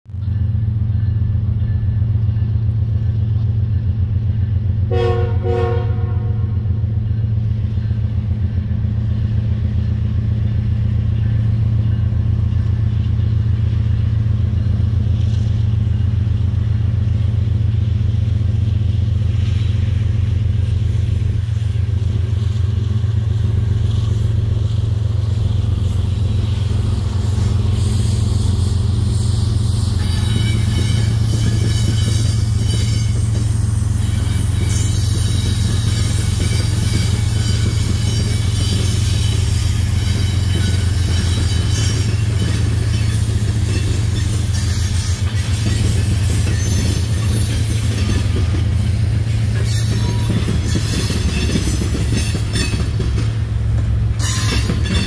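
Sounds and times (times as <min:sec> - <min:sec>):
locomotive engines rumbling: 0:00.1 - 0:55.0
train wheel and rail noise: 0:00.1 - 0:55.0
short pitched horn tones: 0:04.9 - 0:06.6.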